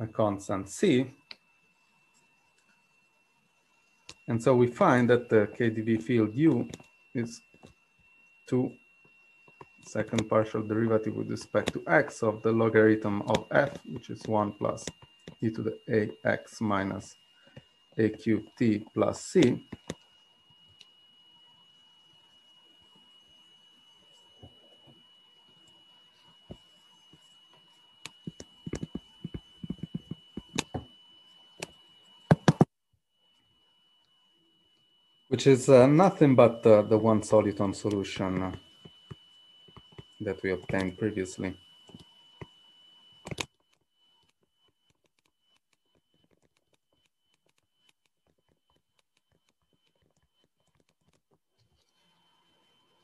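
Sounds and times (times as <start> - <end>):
faint high whine: 0.0 - 53.0
stylus tapping on tablet screen: 28.1 - 30.9, 32.3 - 32.7.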